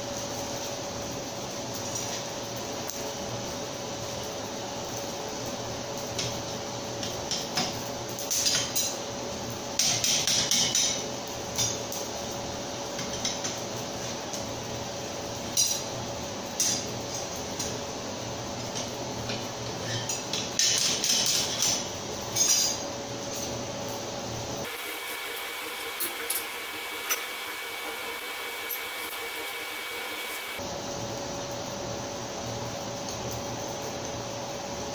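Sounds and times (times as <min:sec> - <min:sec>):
steady hum: 0:17.6 - 0:34.0
thin high whine: 0:24.6 - 0:30.6.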